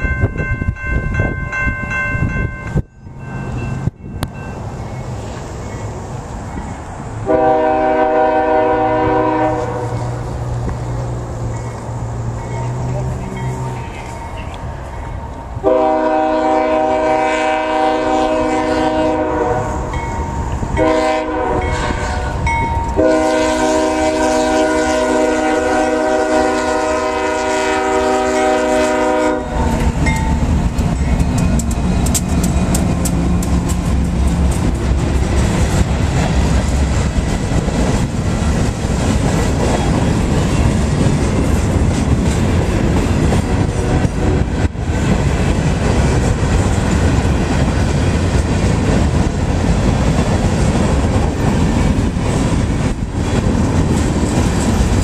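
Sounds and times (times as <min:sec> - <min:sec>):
locomotive air horn blasts: 0:07.2 - 0:10.2, 0:15.6 - 0:19.9, 0:20.8 - 0:29.9
train wheels clattering over rail joints: 0:29.6 - 0:55.0.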